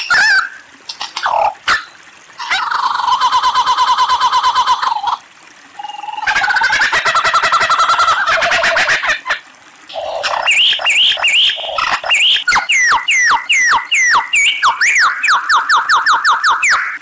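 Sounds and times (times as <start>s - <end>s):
lyrebird rattling trill: 10.2s - 17.0s
lyrebird whistled notes: 10.5s - 16.9s.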